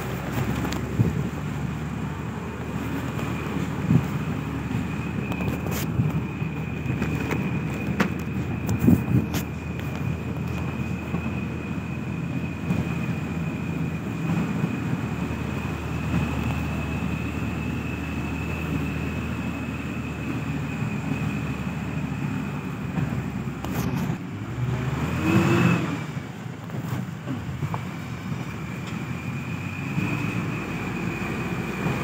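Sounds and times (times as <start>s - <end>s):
vehicle engine running: 0.0s - 32.0s.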